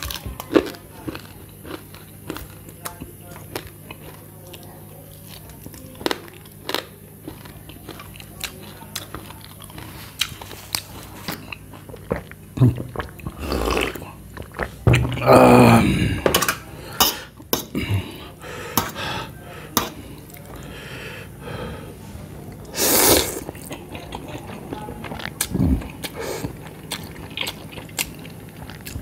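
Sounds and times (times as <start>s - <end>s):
chewing and biting: 0.0s - 15.2s, 22.6s - 29.0s
person gulping water: 12.1s - 16.4s.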